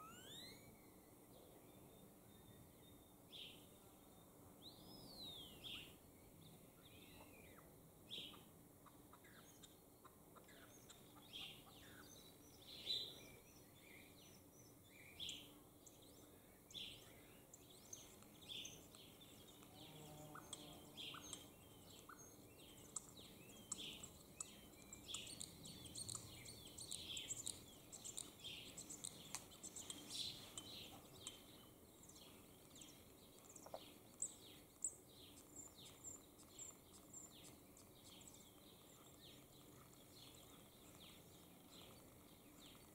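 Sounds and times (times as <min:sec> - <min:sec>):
starlings singing: 0:00.0 - 0:01.0, 0:10.6 - 0:42.9.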